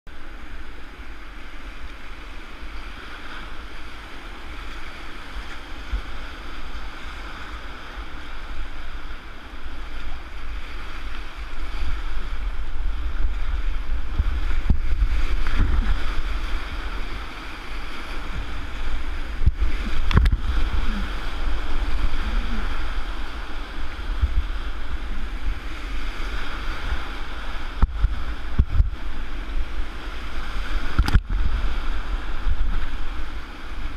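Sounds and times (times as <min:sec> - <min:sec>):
whitewater rushing and churning: 0:00.1 - 0:33.9
low buffeting thumps: 0:12.6 - 0:16.4, 0:18.3 - 0:23.2, 0:23.8 - 0:25.6, 0:27.8 - 0:29.7.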